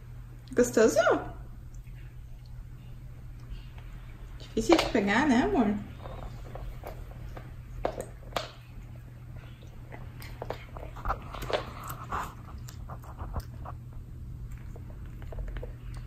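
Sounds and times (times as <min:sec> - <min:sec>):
cat chewing a hard treat: 0:05.9 - 0:16.0.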